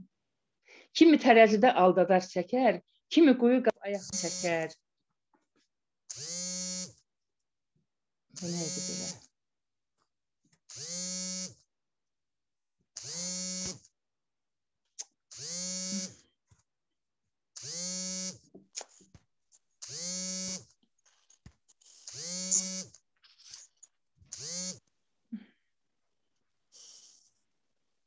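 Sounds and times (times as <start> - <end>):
electric buzz: 4.0 - 4.7, 6.1 - 6.9, 8.4 - 9.2, 10.7 - 11.6, 13.0 - 13.8, 15.3 - 16.1, 17.6 - 18.4, 19.8 - 20.7, 22.1 - 23.0, 24.3 - 24.8.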